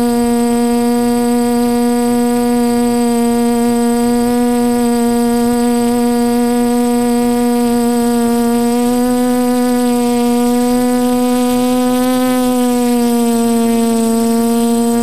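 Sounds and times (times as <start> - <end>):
drone motors humming: 0.0 - 15.0.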